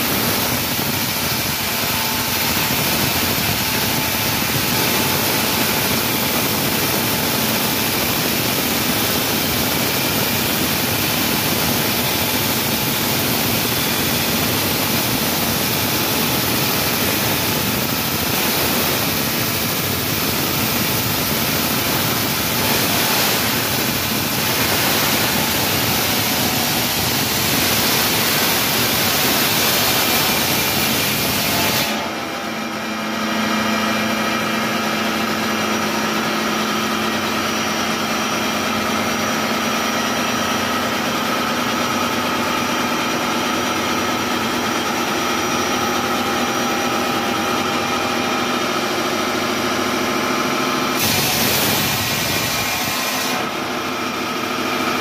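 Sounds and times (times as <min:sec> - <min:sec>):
wall saw grinding: 0:20.4 - 0:32.4.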